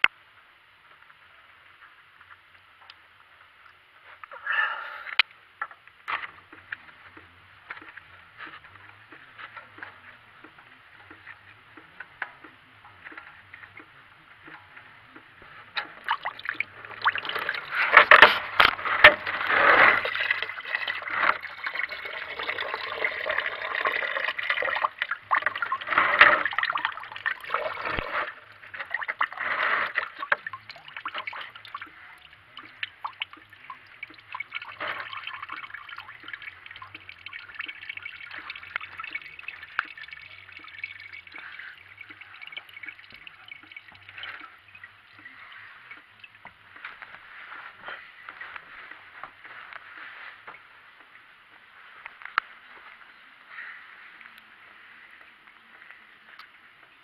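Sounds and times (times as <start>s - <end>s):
coolant splashing and trickling: 5.7s - 50.2s.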